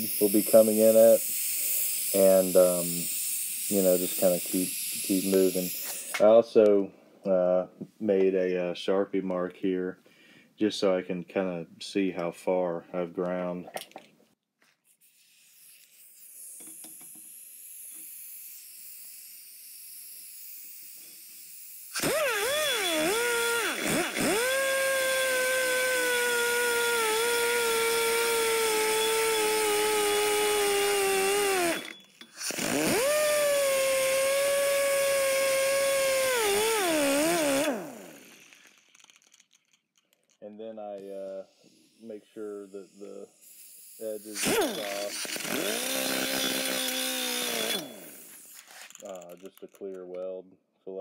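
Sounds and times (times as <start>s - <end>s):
die grinder whining on metal: 21.8s - 40.4s, 43.7s - 49.8s.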